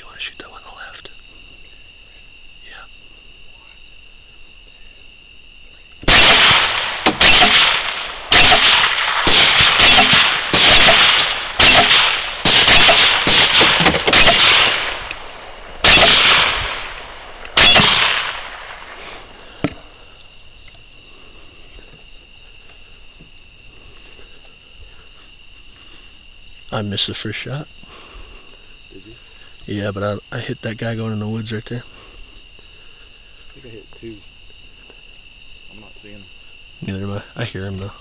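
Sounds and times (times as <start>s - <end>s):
crickets chirring: 0.0s - 38.0s
rifle shots echoing: 6.0s - 20.0s.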